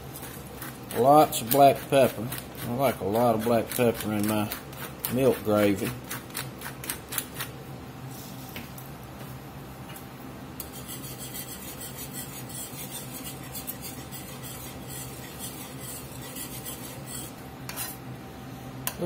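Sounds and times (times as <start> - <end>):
whisk scraping a skillet: 0.1 - 7.5, 10.6 - 18.0.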